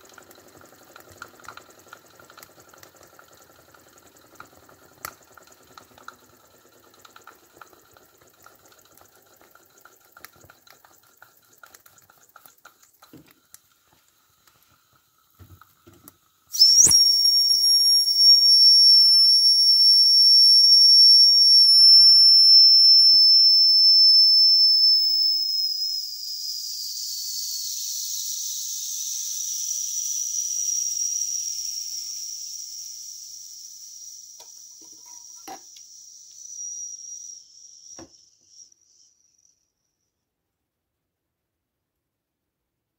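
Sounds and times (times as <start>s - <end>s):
boiler simmering and ticking: 0.0s - 16.4s
shrill steam whistle: 16.5s - 38.8s.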